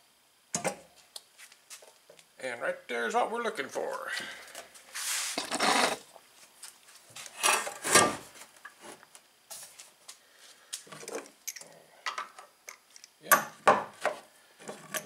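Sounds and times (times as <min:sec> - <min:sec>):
rubbing and scraping on wood: 0:04.8 - 0:06.1
knock on workbench: 0:13.6 - 0:14.2.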